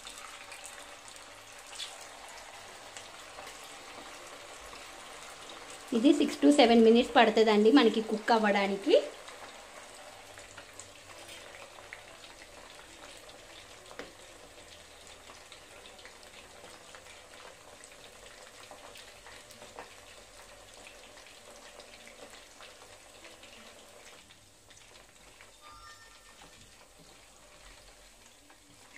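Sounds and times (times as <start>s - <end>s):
chicken deep-frying in oil: 0.0s - 28.9s
crackles and pops of frying: 0.0s - 28.9s.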